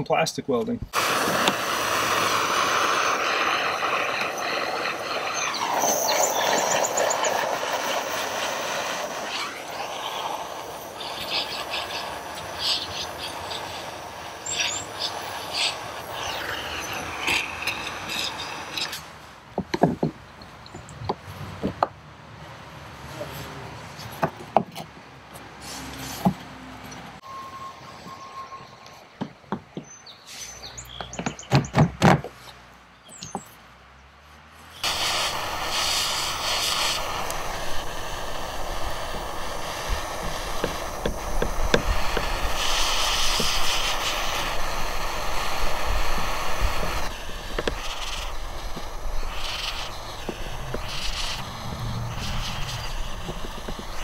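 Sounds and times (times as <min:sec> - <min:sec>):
torch flame hissing: 0:00.9 - 0:19.1, 0:34.8 - 0:54.0
torch igniter clicks: 0:01.0 - 0:04.5, 0:34.8 - 0:54.0.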